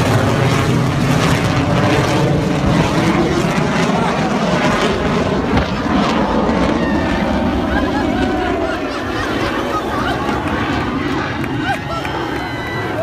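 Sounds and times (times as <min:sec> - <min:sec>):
low-flying airplane engines: 0:00.0 - 0:13.0.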